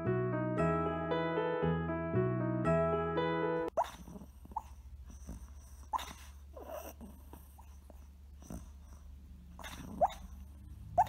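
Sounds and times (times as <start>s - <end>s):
small dog snoring: 3.8s - 11.0s.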